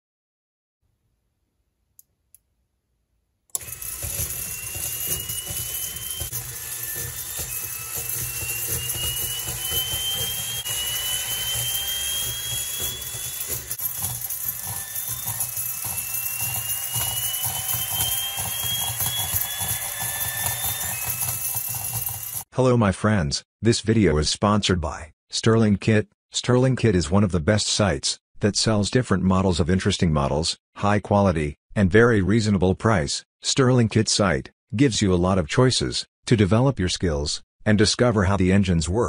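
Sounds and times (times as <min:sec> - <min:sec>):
engine whine climbing in pitch: 0:03.6 - 0:22.4
model turbofan engine rushing hum: 0:03.6 - 0:22.4.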